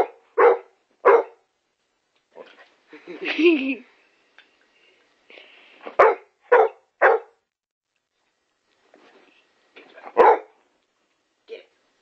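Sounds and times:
dog barking: 0.0 - 1.4, 6.0 - 7.4, 10.0 - 10.6.

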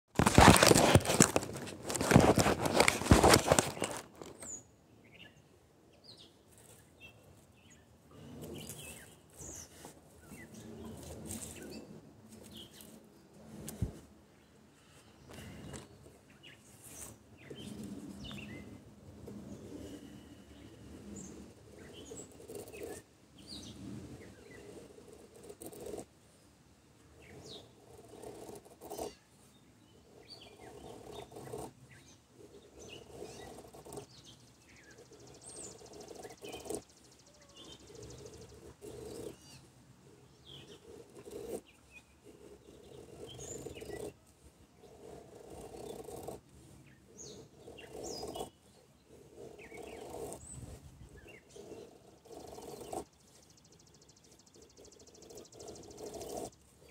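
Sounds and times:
knife shaving wood: 0.2 - 4.5
small birds chirping: 0.2 - 56.9.

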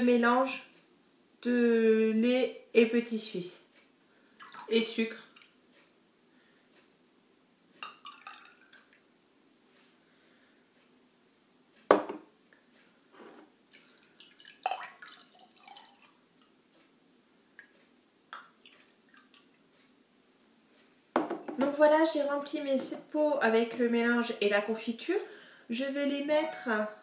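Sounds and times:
liquid dribbling into jars: 4.4 - 5.6, 7.8 - 9.0, 13.7 - 16.5, 18.3 - 19.6
jar knocking on table: 11.9 - 12.3, 21.2 - 21.7.

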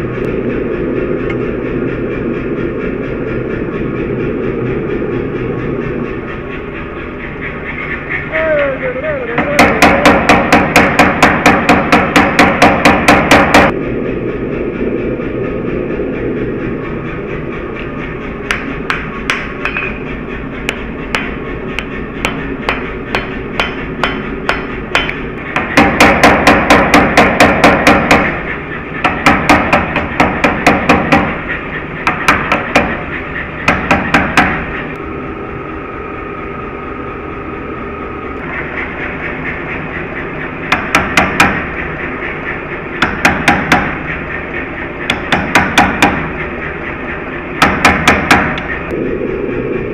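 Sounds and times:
forge background noise: 0.0 - 49.9
hammer striking steel on anvil: 9.4 - 13.7, 18.4 - 34.8, 40.6 - 41.8, 43.0 - 44.2, 45.1 - 46.4, 47.6 - 48.8.

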